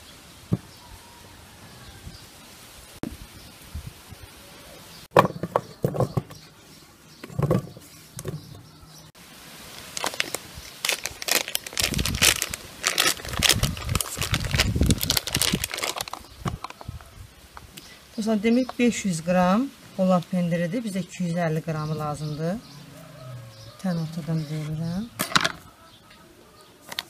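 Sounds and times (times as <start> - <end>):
plastic film crinkling: 9.7 - 16.9.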